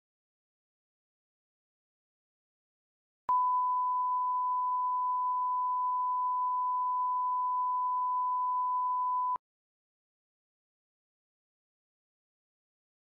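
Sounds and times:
electronic bleep tone: 0:03.3 - 0:09.4.

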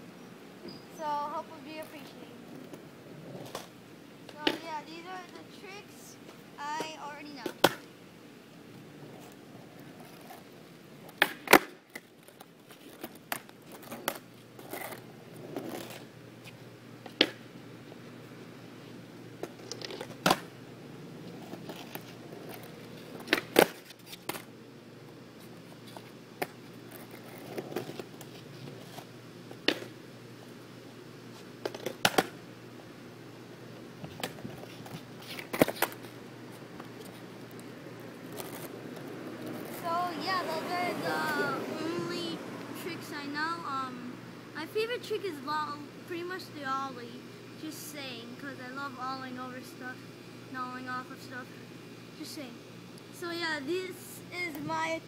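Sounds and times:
skateboard cracks and clacks: 0:07.4 - 0:07.9, 0:11.0 - 0:15.0, 0:19.4 - 0:20.5, 0:21.4 - 0:24.5, 0:31.6 - 0:32.4, 0:34.2 - 0:36.2, 0:38.3 - 0:39.8.

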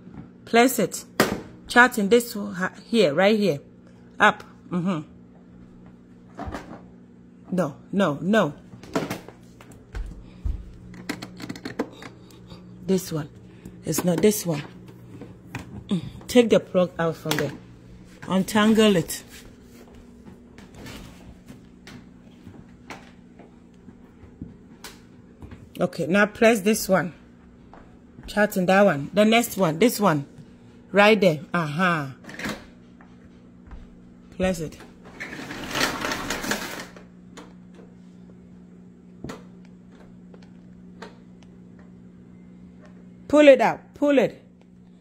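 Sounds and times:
vacuum cord rewind rattling: 0:35.1 - 0:37.1.

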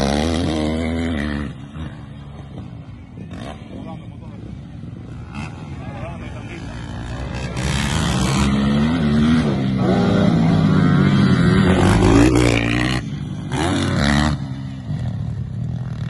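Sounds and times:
dirt bike engine revving: 0:00.0 - 0:04.0, 0:04.9 - 0:16.0.

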